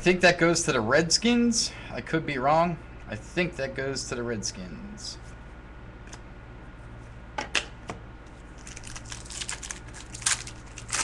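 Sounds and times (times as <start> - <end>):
cards flicked and rustling: 8.6 - 11.0.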